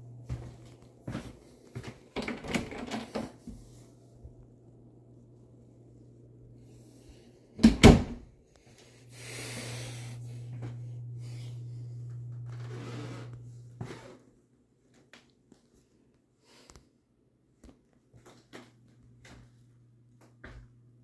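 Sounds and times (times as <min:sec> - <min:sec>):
low hum with airy hiss: 0:00.0 - 0:14.7
closet door shutting: 0:02.2 - 0:03.4, 0:07.6 - 0:08.3.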